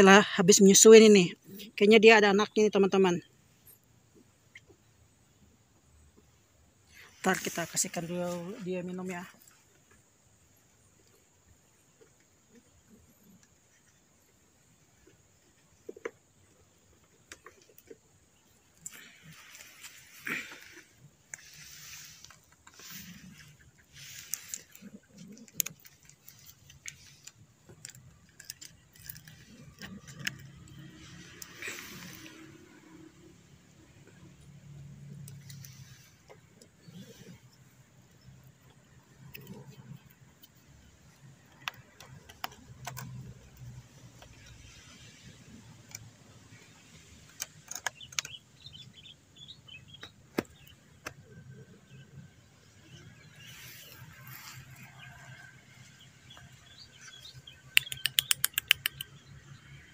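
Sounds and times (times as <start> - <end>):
cat crunching dry kibble: 22.6 - 32.2.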